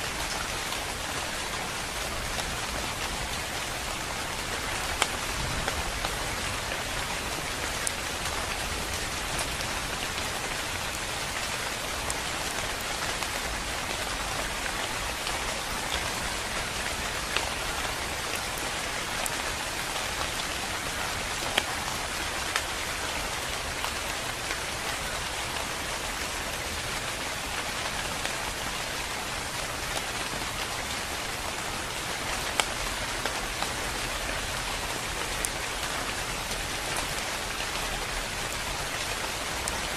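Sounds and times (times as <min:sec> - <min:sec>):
rain on foliage: 0:00.0 - 0:39.9
raindrop ticks: 0:04.5 - 0:06.8.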